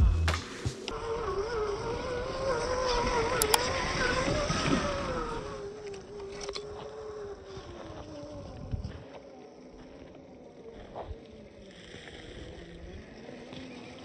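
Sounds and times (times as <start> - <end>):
electric motor whining: 0.0 - 14.0.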